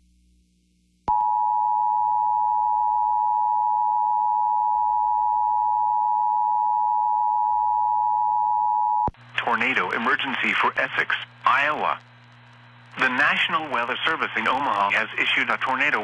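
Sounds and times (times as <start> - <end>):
two-tone alarm: 1.1 - 9.1.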